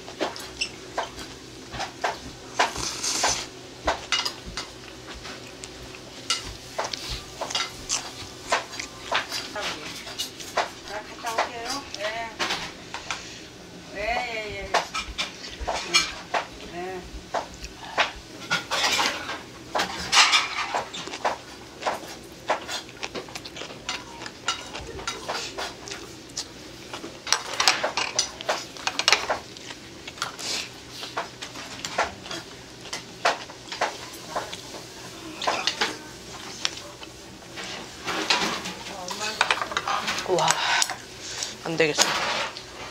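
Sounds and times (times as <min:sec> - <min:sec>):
person chewing: 0:00.2 - 0:09.4, 0:17.4 - 0:18.2, 0:20.3 - 0:34.6.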